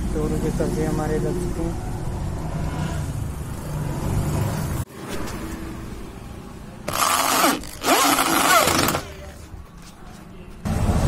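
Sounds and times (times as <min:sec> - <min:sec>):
electric drill whine: 0:06.9 - 0:09.0.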